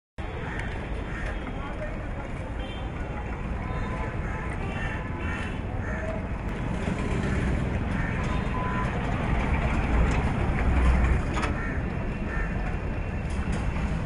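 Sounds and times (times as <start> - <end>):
street traffic: 0.2 - 14.0
truck engine passing: 6.5 - 14.0.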